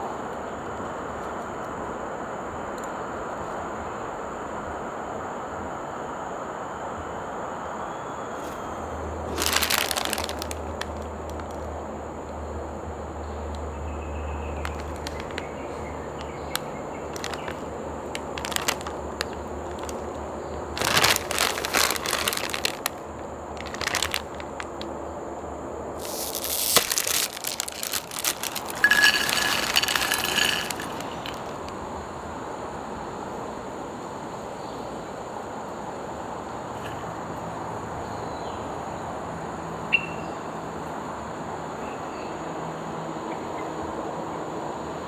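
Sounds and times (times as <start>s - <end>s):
plastic snack bag crinkling: 9.2s - 11.7s, 14.6s - 24.9s, 26.0s - 31.7s.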